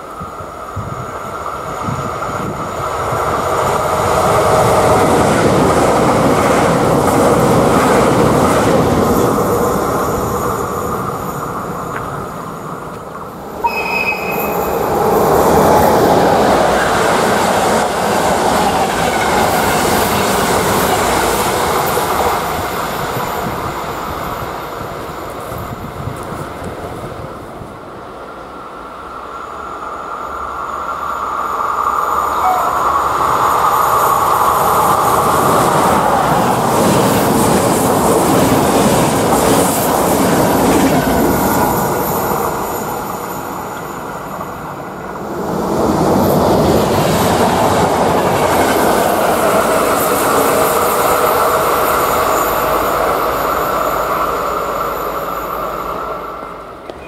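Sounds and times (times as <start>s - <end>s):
train passing at speed: 0.0s - 57.0s.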